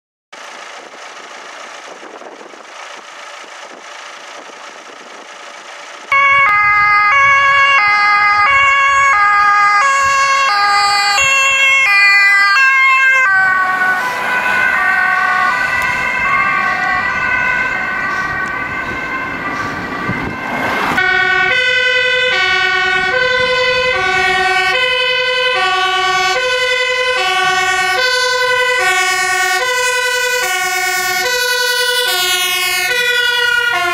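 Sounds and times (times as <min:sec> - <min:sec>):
two-tone emergency sirens: 0:06.0 - 0:33.9
slow low two-tone siren: 0:06.1 - 0:33.9.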